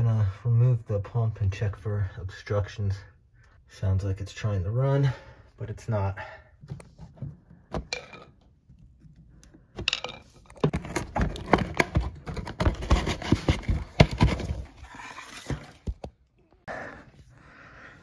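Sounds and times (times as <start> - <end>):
plastic and metal parts clattering: 6.6 - 16.2.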